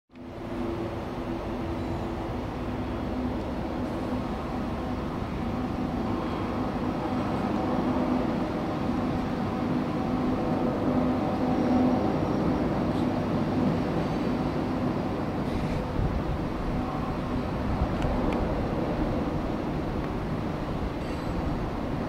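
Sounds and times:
locomotive engine hum: 0:00.1 - 0:22.0.

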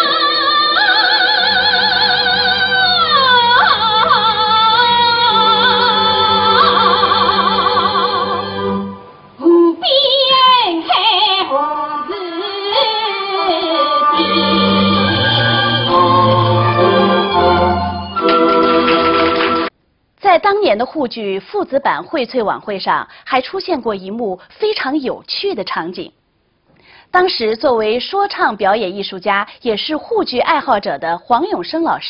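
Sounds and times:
traditional band accompaniment: 0:14.2 - 0:19.7.

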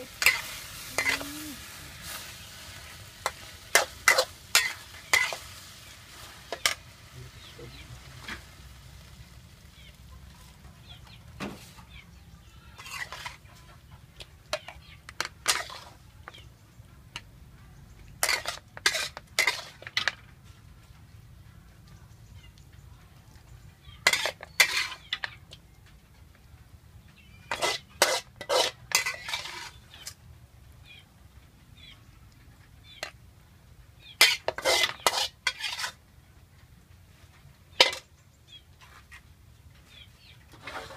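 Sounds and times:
metal spatula scraping a wok: 0:00.0 - 0:08.6, 0:12.7 - 0:13.6, 0:14.5 - 0:16.0, 0:18.2 - 0:20.2, 0:24.0 - 0:25.3, 0:27.4 - 0:30.2, 0:34.1 - 0:36.0, 0:37.7 - 0:38.1, 0:40.5 - 0:40.9.

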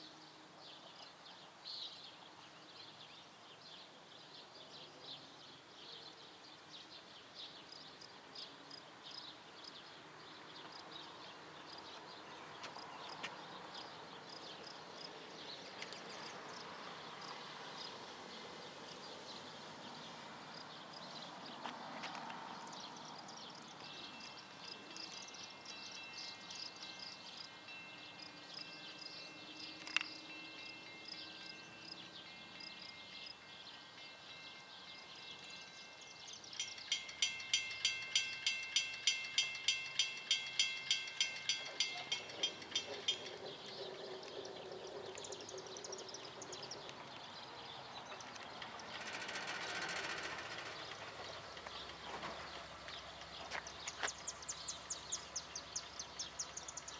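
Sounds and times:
birds chirping: 0:00.8 - 0:56.9
passenger train approaching: 0:08.9 - 0:56.9
train rushing: 0:11.6 - 0:56.9
bell ringing: 0:35.5 - 0:43.5.

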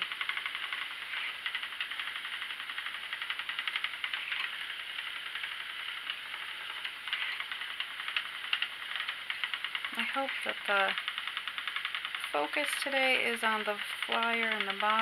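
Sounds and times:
spinning wheel whirring and ticking: 0:00.0 - 0:15.0.

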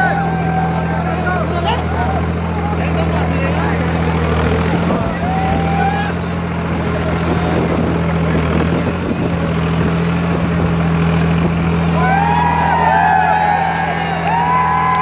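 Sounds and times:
crowd shouting and whooping: 0:00.0 - 0:02.8, 0:04.7 - 0:07.7, 0:11.7 - 0:15.0
diesel tractor engine running: 0:00.0 - 0:15.0.

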